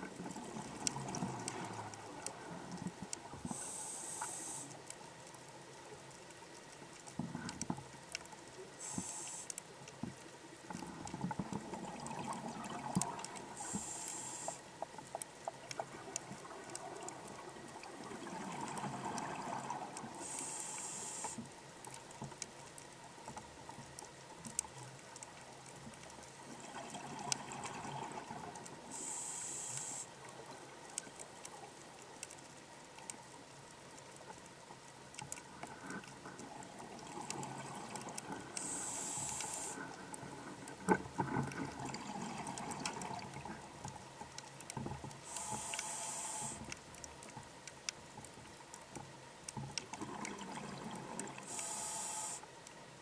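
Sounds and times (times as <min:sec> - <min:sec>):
faint clicks: 0:00.1 - 0:53.0
regulator hissing inhale: 0:03.5 - 0:04.8, 0:08.8 - 0:09.5, 0:13.6 - 0:14.6, 0:20.2 - 0:21.4, 0:28.9 - 0:30.1, 0:38.6 - 0:39.9, 0:45.2 - 0:46.7, 0:51.4 - 0:52.5.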